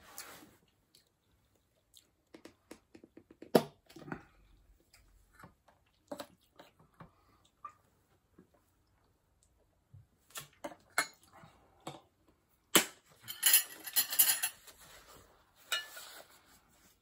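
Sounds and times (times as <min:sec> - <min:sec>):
chewing: 0:00.2 - 0:02.6
spoons clinking on dishes: 0:13.2 - 0:14.6, 0:15.7 - 0:16.1.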